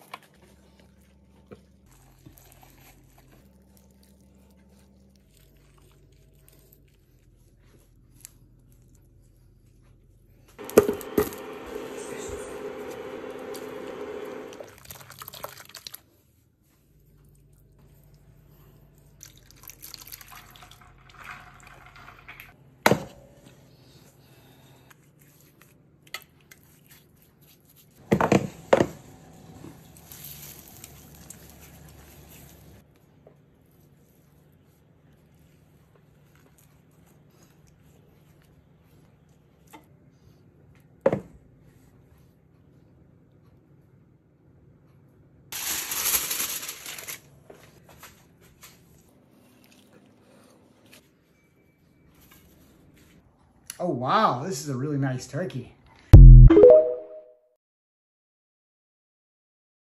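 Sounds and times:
faint handling sounds: 0:00.0 - 0:11.0.

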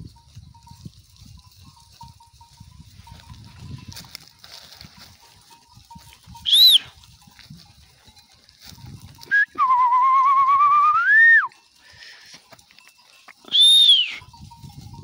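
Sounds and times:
person whistling: 0:06.4 - 0:06.9, 0:09.2 - 0:11.5, 0:13.4 - 0:14.3.

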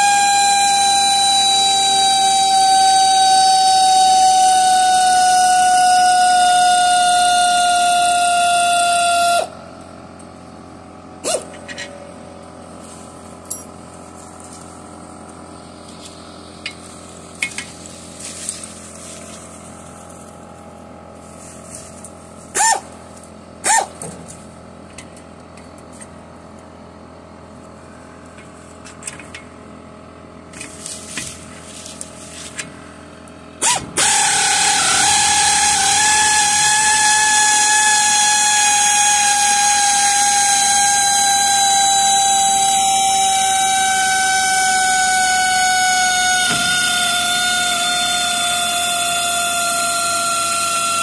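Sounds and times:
pneumatic air ratchet whining: 0:07.6 - 0:09.9, 0:11.2 - 0:12.1, 0:33.6 - 0:51.0.

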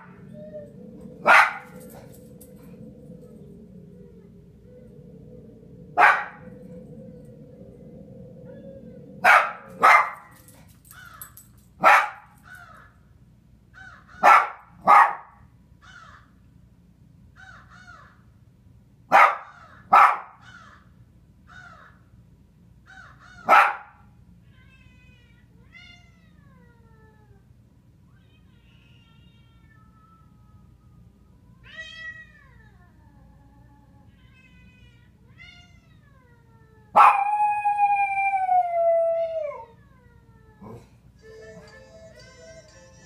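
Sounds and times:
fainter higher calls: 0:00.0 - 0:11.4
dog barking: 0:01.2 - 0:01.8, 0:06.0 - 0:06.4, 0:09.2 - 0:10.3, 0:11.8 - 0:12.2, 0:14.2 - 0:15.4, 0:19.1 - 0:20.4, 0:23.4 - 0:24.0, 0:37.0 - 0:37.2.

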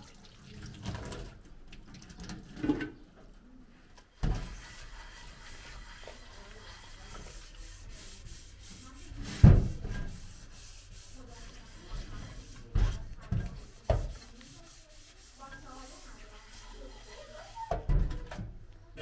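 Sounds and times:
sponge scrubbing dishes: 0:04.2 - 0:18.3.

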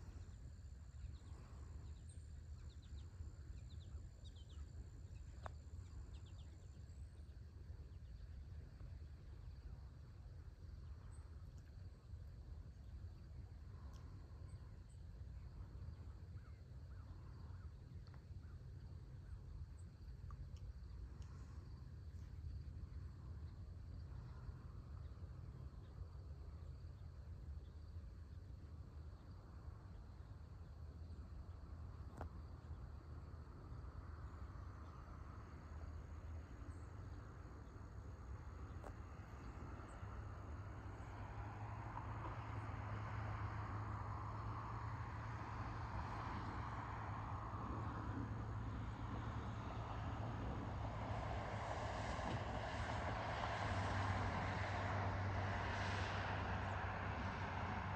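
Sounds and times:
steady low rumble: 0:00.0 - 0:42.6
faint click: 0:13.8 - 0:14.2, 0:20.2 - 0:21.4.

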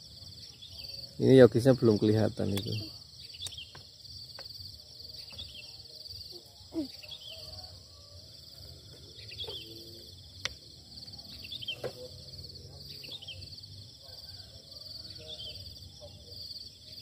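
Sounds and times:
insects chirring: 0:00.0 - 0:17.0
bird chirps: 0:02.4 - 0:03.9, 0:05.1 - 0:07.6, 0:09.1 - 0:10.1, 0:11.1 - 0:13.6.

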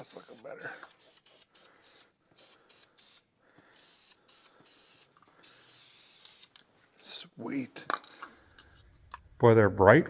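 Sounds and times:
aerosol spray hissing: 0:00.0 - 0:06.6.

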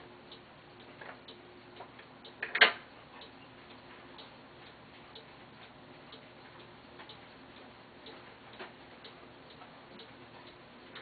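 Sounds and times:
clock ticking: 0:03.1 - 0:11.0.

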